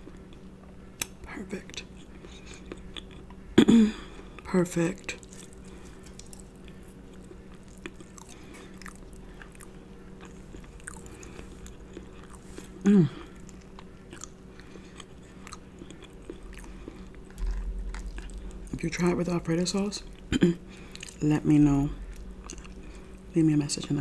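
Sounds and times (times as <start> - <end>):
chewing and mouth smacks: 0.0 - 3.4, 5.0 - 18.8, 20.0 - 21.2, 22.0 - 23.3
steady low hum: 0.0 - 24.0
person humming mm: 12.8 - 13.4.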